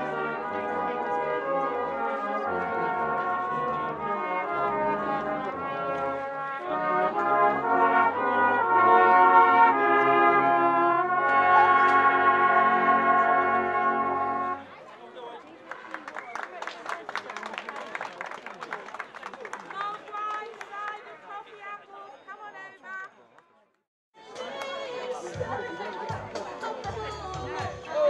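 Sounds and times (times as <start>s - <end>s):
brass instruments playing chords: 0.0s - 14.7s.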